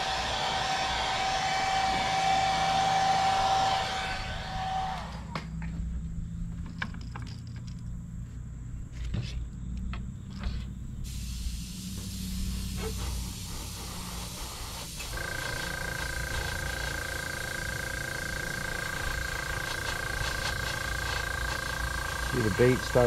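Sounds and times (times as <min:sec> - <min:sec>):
steady high whine: 0:00.0 - 0:06.4, 0:11.4 - 0:23.0
airbrush air hiss: 0:11.0 - 0:23.0.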